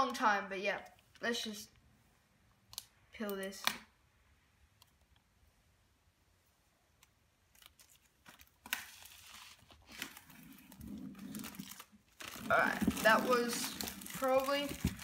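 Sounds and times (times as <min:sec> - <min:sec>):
plastic wrap crinkling: 0:07.4 - 0:15.0.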